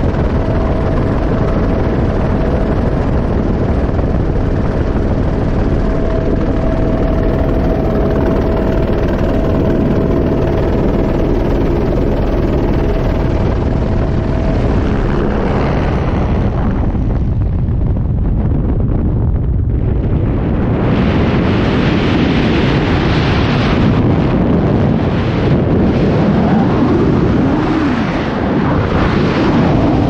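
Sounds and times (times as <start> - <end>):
steady tone: 0.0 - 17.4
helicopter engine and rotor: 0.0 - 19.0
wind rushing over microphone: 0.0 - 30.0.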